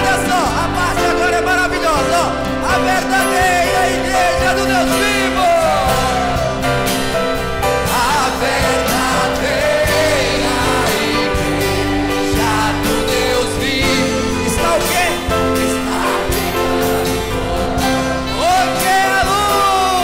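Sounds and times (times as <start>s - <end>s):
held accompanying chords: 0.0s - 20.0s
women singing a hymn: 7.7s - 18.3s.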